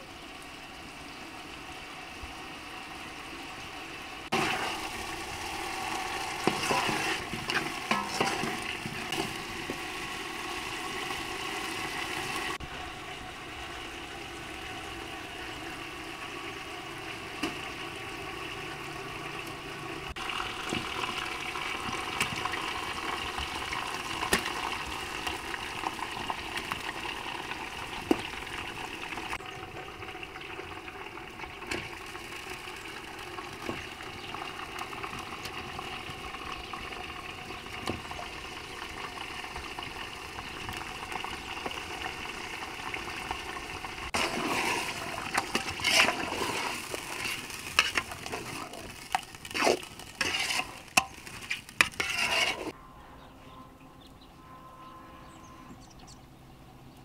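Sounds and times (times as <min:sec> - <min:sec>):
water rushing: 0:01.2 - 0:15.0, 0:42.9 - 0:50.5.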